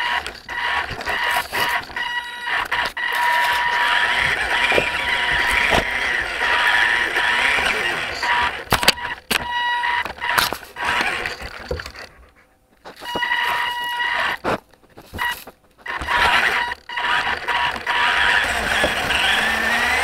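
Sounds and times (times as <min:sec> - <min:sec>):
small electric motor whining: 0:02.7 - 0:08.6, 0:15.9 - 0:20.0.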